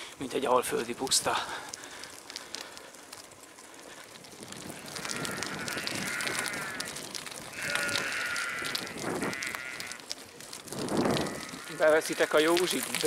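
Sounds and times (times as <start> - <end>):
sheep bleating: 4.7 - 10.0, 11.0 - 13.0.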